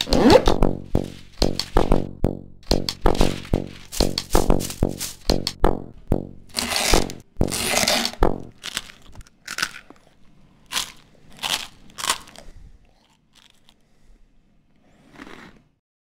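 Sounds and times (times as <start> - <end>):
dry crunching noises: 2.7 - 5.6, 6.4 - 10.1.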